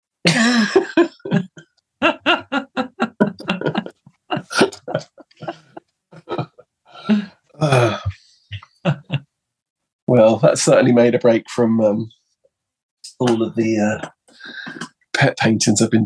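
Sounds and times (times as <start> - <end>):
person laughing: 0.3 - 9.2.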